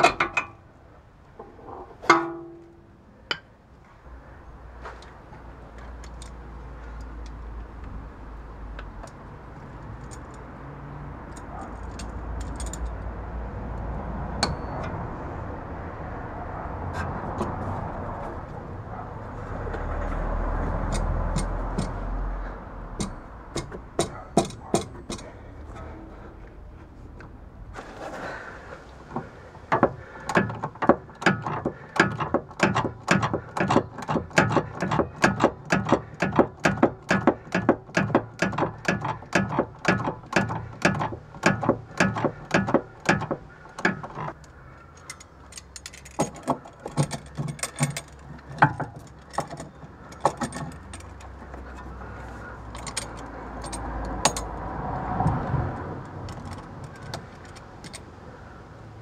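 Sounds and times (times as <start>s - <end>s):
metal knocks: 1.4s - 3.4s, 20.8s - 22.1s, 23.0s - 25.4s, 29.1s - 44.4s, 45.0s - 54.6s.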